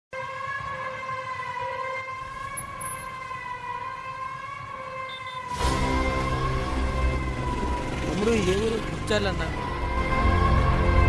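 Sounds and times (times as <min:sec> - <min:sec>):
long steady horn-like tone: 0:04.9 - 0:08.0.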